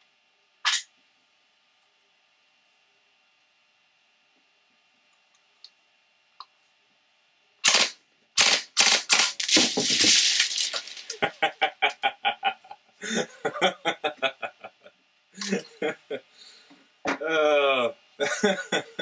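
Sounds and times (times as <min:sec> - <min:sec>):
airsoft gun firing bursts: 0:07.6 - 0:10.6
man laughing: 0:10.8 - 0:16.3, 0:17.2 - 0:19.0.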